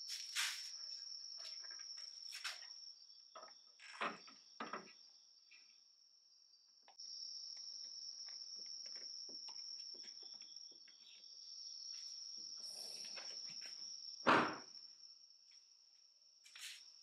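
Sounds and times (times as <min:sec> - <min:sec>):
crickets chirping: 0:00.0 - 0:17.0
loud thump: 0:14.3 - 0:14.7.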